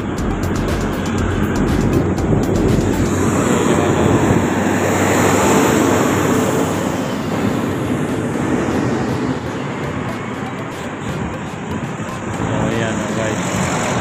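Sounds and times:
road traffic passing: 0:00.0 - 0:14.0.

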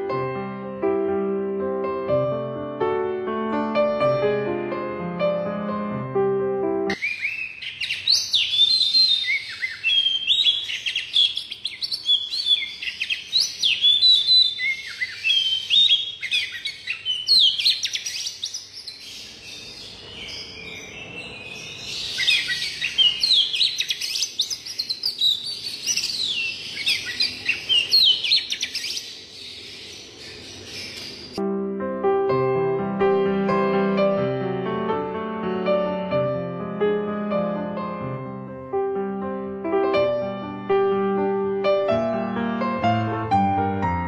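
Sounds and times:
songbird whistling varied phrases: 0:07.0 - 0:18.6, 0:22.1 - 0:29.1.

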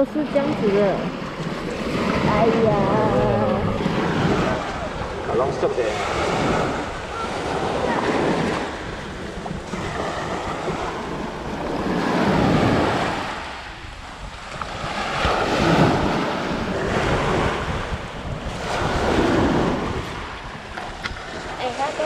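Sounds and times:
small waves breaking on sand: 0:00.0 - 0:22.0
wind rumbling on microphone: 0:00.0 - 0:22.0.

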